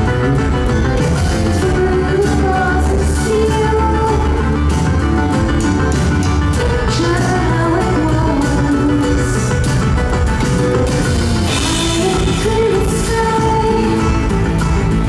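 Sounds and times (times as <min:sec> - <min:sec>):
live pop-rock band playing: 0:00.0 - 0:15.0
woman singing: 0:01.3 - 0:04.8, 0:06.5 - 0:09.7, 0:11.5 - 0:14.8.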